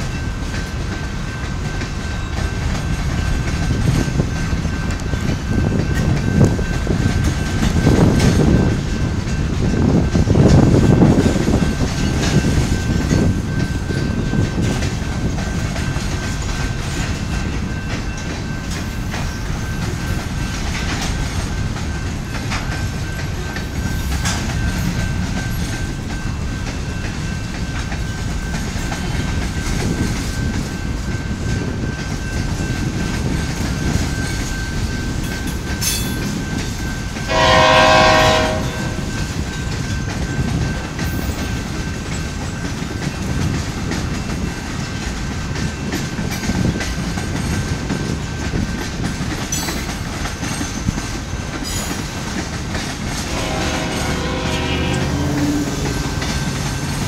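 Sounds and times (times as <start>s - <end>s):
freight train rumbling past: 0.0s - 57.0s
train wheel clacks: 0.0s - 57.0s
train horn: 37.3s - 39.3s, 53.1s - 56.9s.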